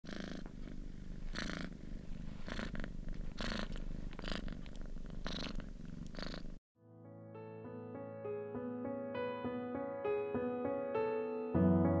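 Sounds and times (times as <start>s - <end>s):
cat purring: 0.0s - 6.6s.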